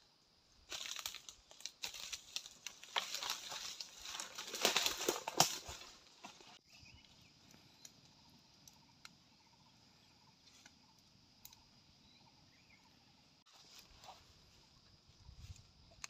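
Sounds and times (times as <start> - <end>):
campfire crackling: 0.6 - 6.4, 7.1 - 12.0.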